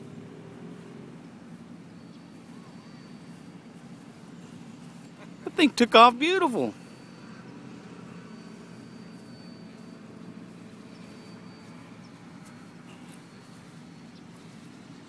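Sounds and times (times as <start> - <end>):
distant model aircraft motor drone: 6.8 - 15.0.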